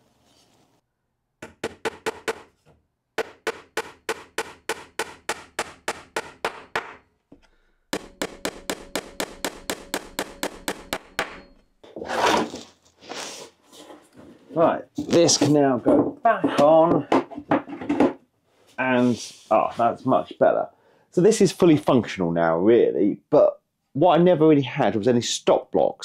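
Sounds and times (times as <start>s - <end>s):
hammer striking nails into wood: 1.4s - 2.6s, 3.2s - 7.0s, 7.9s - 11.5s
wood rustling: 11.8s - 18.2s.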